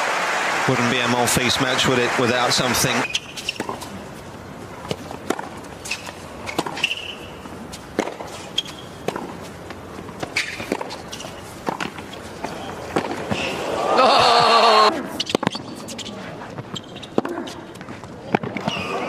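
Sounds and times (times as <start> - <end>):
sneakers squeaking on court: 2.9 - 4.0, 4.8 - 13.7, 15.1 - 19.0
tennis ball bouncing: 2.9 - 4.2, 4.8 - 19.0
tennis racket strikes: 7.9 - 9.4, 10.0 - 13.5.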